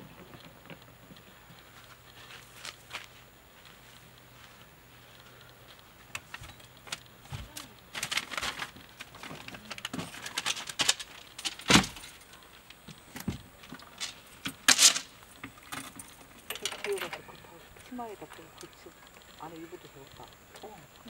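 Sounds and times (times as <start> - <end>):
gear clicking and rattling: 5.1 - 21.0.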